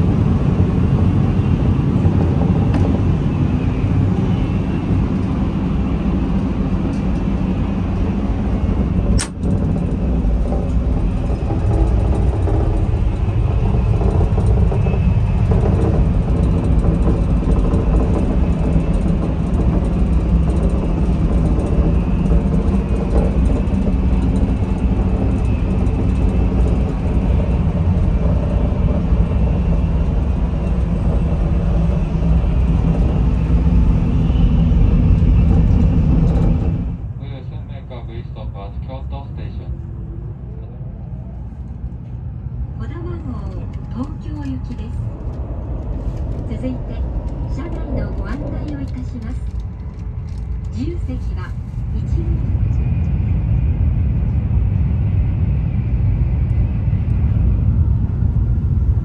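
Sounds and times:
train running rumble: 0.0 - 59.0
sharp click: 9.2 - 9.4.

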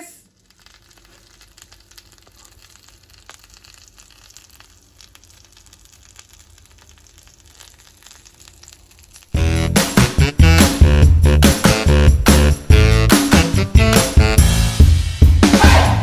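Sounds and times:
fish sizzling on hot plate: 0.2 - 10.9.

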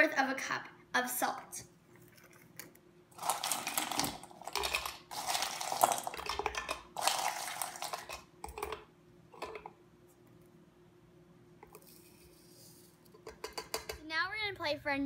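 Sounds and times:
ice cubes clattering against plastic: 3.2 - 8.8.

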